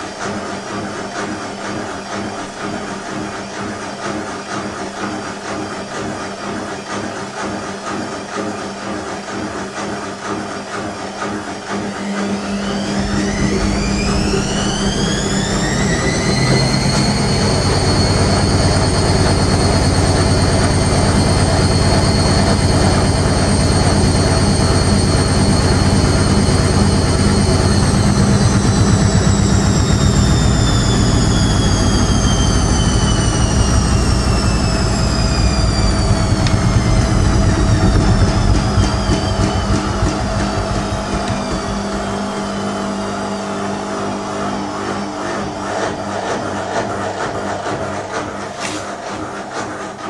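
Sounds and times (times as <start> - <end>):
washing machine motor whine: 0.0 - 50.0
low rumble: 12.6 - 43.2.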